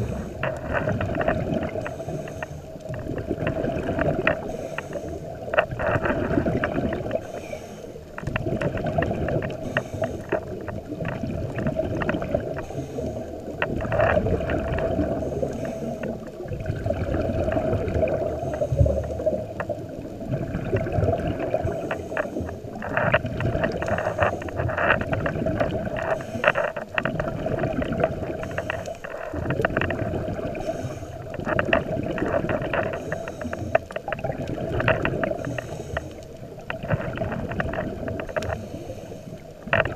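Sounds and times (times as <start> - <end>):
diver breathing through regulator: 0.0 - 0.8, 1.6 - 3.2, 4.2 - 10.8, 12.4 - 16.3, 17.6 - 19.4, 21.6 - 27.0, 27.7 - 29.6, 30.2 - 31.7, 32.3 - 34.0, 35.0 - 39.9
exhalation bubbling: 3.0 - 4.5, 13.6 - 15.5, 16.1 - 21.9, 26.8 - 28.7, 29.3 - 33.2, 34.0 - 35.5.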